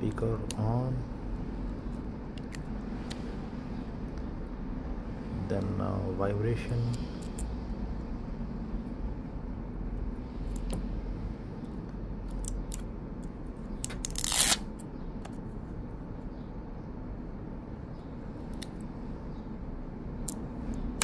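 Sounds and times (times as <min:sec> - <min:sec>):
plastic liner ripping off: 0:13.9 - 0:14.7.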